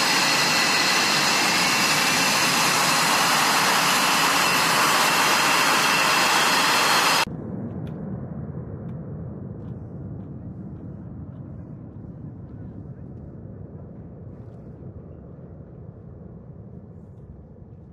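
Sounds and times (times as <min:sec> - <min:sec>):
jet engine roaring with turbine whine: 0:00.0 - 0:17.8
faint low rumble: 0:07.2 - 0:17.9.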